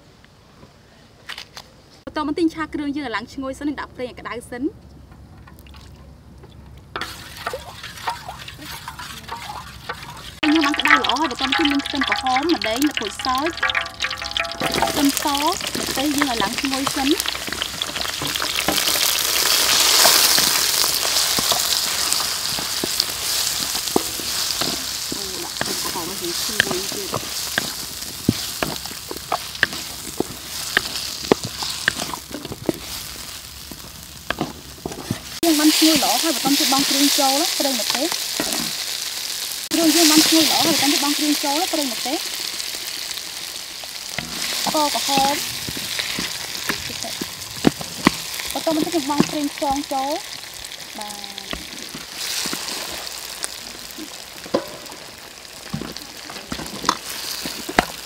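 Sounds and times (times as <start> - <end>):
spatula scraping a steel wok: 7.0 - 10.4
wooden spatula scraping wok: 7.0 - 38.9, 44.1 - 50.8, 51.4 - 55.0
food frying in oil: 7.0 - 58.0.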